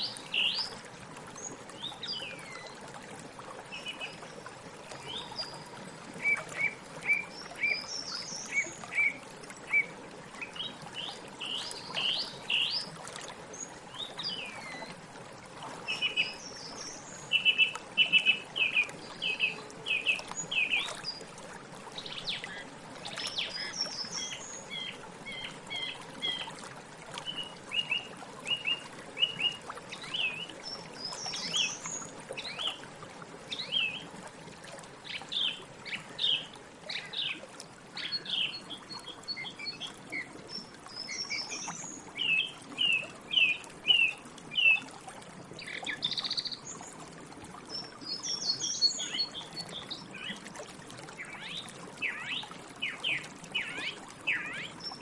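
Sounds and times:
song thrush singing: 15.8s - 21.2s.

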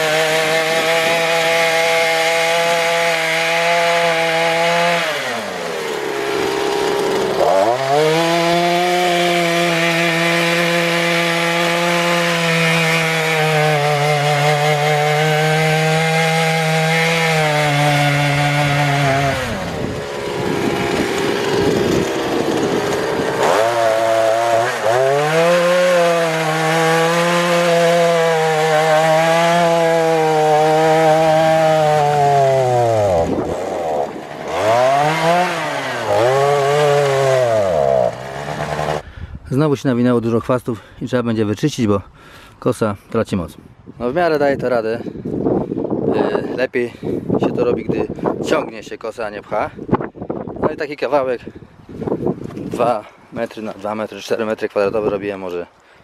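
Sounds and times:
brush cutter engine running: 0.0s - 39.1s
tiller churning soil: 0.0s - 39.1s.

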